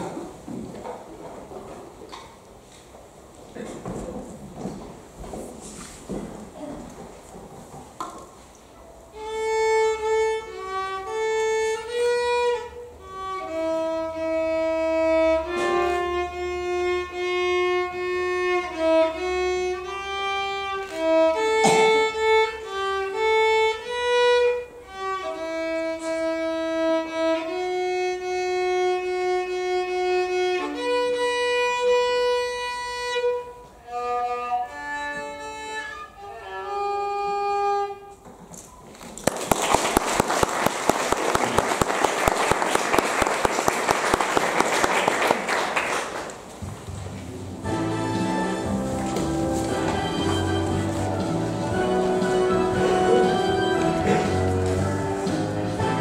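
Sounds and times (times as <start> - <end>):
violin slow melody: 9.1 - 38.2, 47.6 - 56.0.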